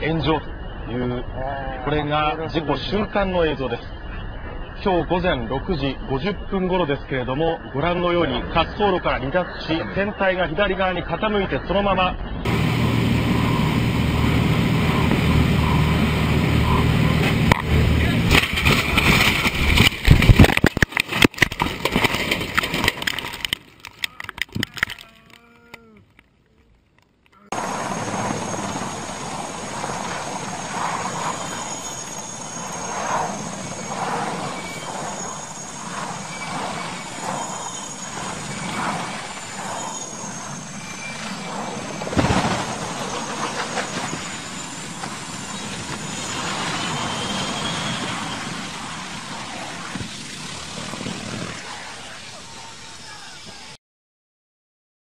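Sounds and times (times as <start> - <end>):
helicopter turbine whine and rotor: 12.2 - 20.6, 27.5 - 53.6
propeller plane engine: 12.4 - 24.0, 27.4 - 53.2
loud jolting impacts: 18.0 - 25.4.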